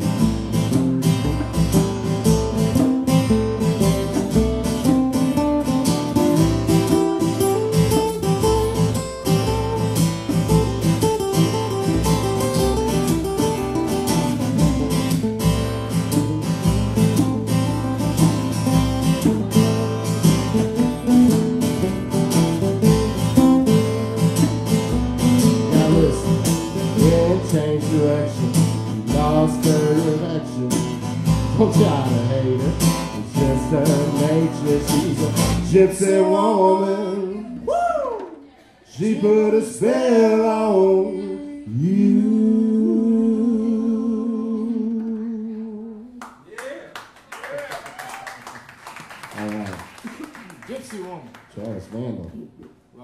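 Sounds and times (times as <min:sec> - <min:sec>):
acoustic guitars strumming: 0:00.0 - 0:37.7.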